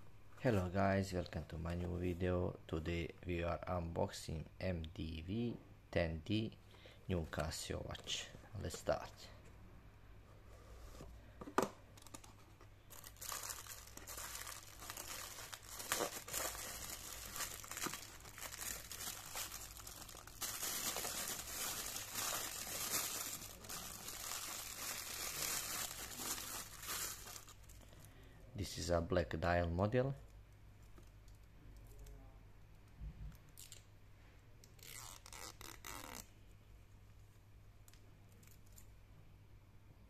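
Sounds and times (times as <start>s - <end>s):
plastic bag crinkling: 12.0s - 27.9s.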